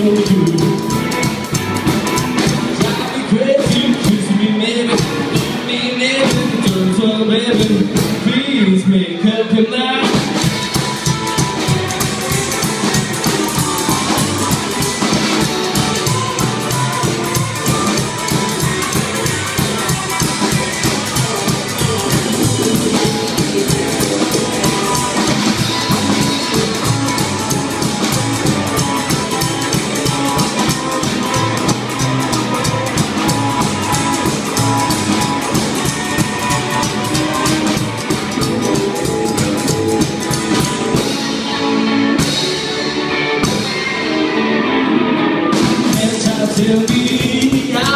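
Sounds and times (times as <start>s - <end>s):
drum beat: 0.0s - 8.4s, 10.1s - 41.3s, 45.6s - 47.9s
rockabilly band playing: 0.0s - 47.9s
person singing: 2.5s - 10.2s, 45.7s - 47.9s.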